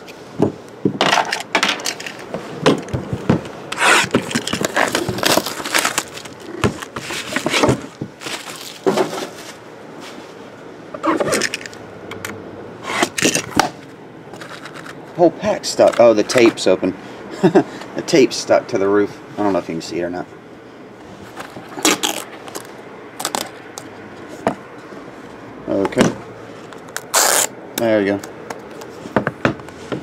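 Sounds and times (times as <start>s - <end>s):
plastic wrap crinkling: 4.0s - 8.9s, 21.7s - 23.6s
cardboard box scraping and knocking: 6.6s - 9.5s.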